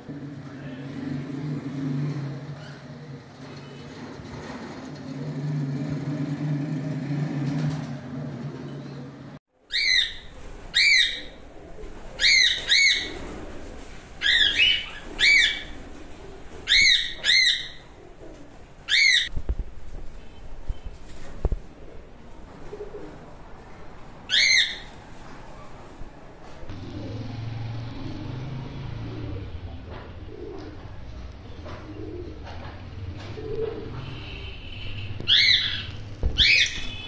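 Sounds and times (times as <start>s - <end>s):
cockatiels calling shrilly: 9.7s - 11.4s, 12.2s - 13.4s, 14.2s - 15.8s, 16.6s - 17.8s, 18.9s - 19.3s, 24.3s - 24.9s, 35.2s - 37.0s.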